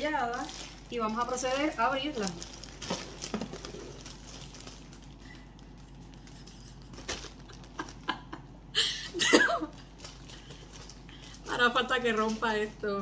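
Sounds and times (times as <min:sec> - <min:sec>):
plastic bag crinkling: 0:00.0 - 0:08.4, 0:09.4 - 0:12.8
plastic bag rustling: 0:00.0 - 0:08.4, 0:09.4 - 0:13.0.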